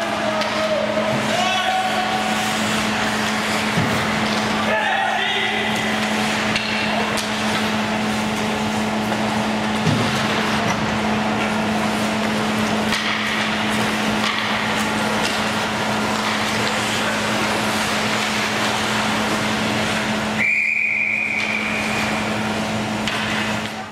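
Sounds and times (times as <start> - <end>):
ice rink low hum: 0.0 - 23.9
referee's whistle blowing: 20.4 - 21.9.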